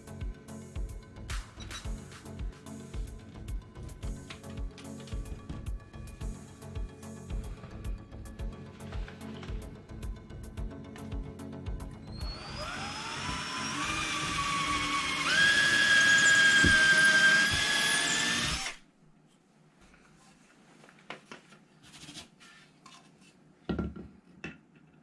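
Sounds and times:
cordless drill motor whine: 12.0 - 18.8.

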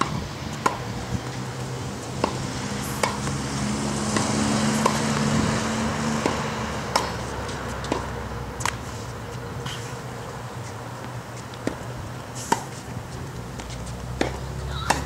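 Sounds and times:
tennis balls struck with rackets: 0.0 - 15.0.

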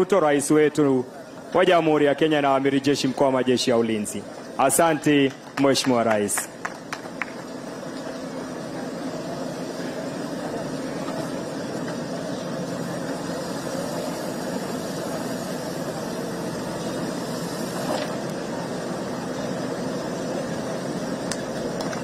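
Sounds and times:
diesel engine running: 5.5 - 22.0.

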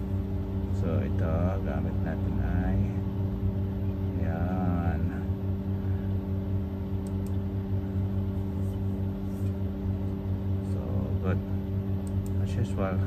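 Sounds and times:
low machine hum: 0.0 - 13.0
faint clicks: 7.0 - 7.4, 12.0 - 12.4.

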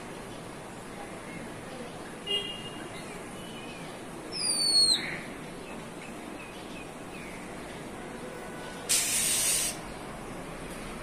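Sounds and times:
bird whistled call: 4.4 - 5.1
hiss: 8.9 - 9.9.

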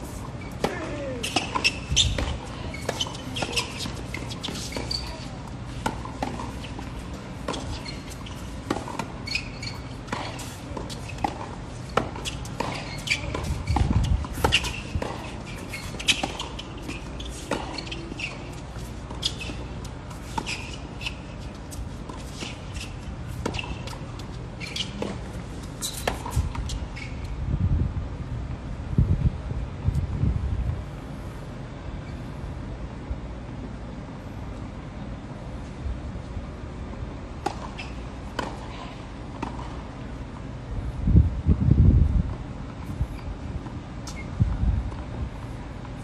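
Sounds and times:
racket striking tennis ball: 0.4 - 26.8
wind on microphone: 13.3 - 15.0, 26.4 - 30.9, 40.8 - 43.4, 44.3 - 45.4.

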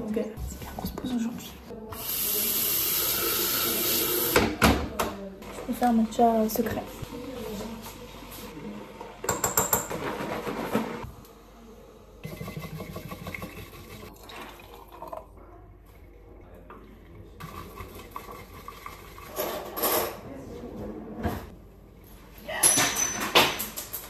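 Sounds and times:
bamboo whisk beating tea in bowl: 12.2 - 14.1, 17.4 - 19.8
tea pouring into glass: 13.3 - 15.4.

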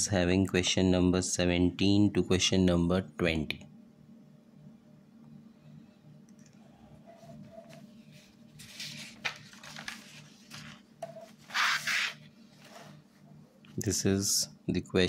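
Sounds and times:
paper pages turning: 7.2 - 13.0
paper crackle: 8.6 - 12.8.

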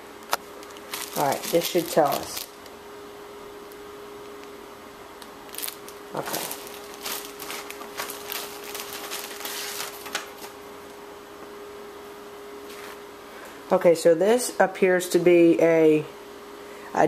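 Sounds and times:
faint steady hum: 0.0 - 17.0
plastic bag rustling: 0.5 - 2.6, 5.4 - 10.6.

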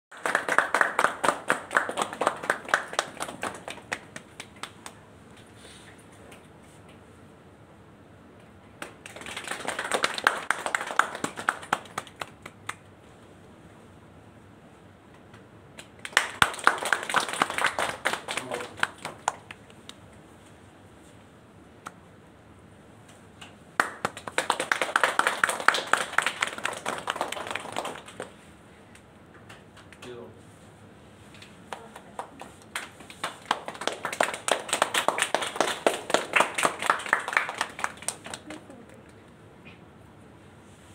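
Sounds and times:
people clapping: 0.1 - 5.1, 8.7 - 13.0, 15.3 - 20.0, 23.4 - 30.2, 31.3 - 39.4.

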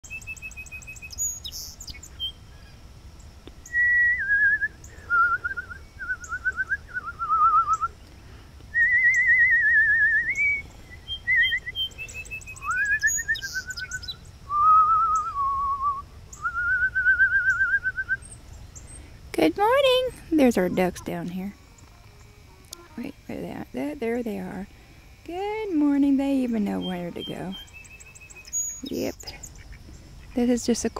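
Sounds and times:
sparrow chirping: 0.0 - 2.8, 10.3 - 14.3, 25.8 - 30.9
person whistling a warbling tune: 3.7 - 7.9, 14.5 - 18.2.

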